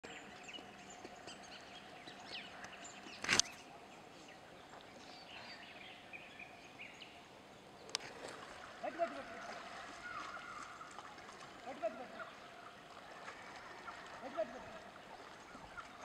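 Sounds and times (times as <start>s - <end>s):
birds chirping: 0.0s - 16.0s
low steady hiss: 0.1s - 16.0s.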